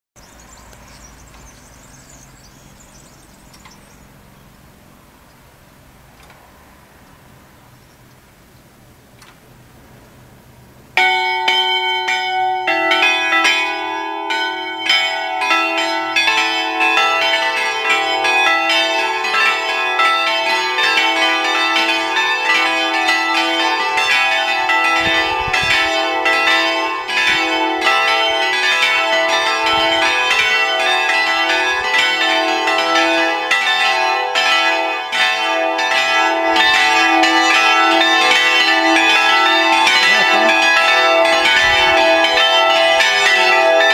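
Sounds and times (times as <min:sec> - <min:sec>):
church bells pealing: 0:11.0 - 0:43.9.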